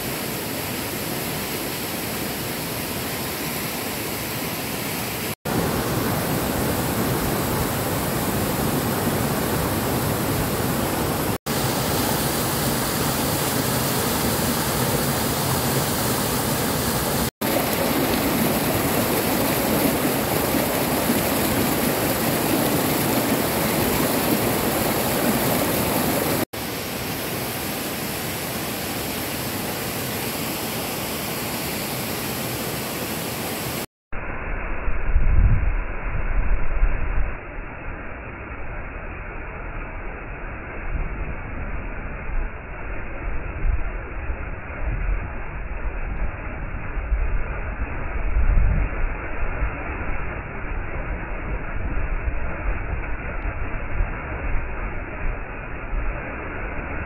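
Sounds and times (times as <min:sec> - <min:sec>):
waterfall rushing over rocks: 0:00.0 - 0:33.9.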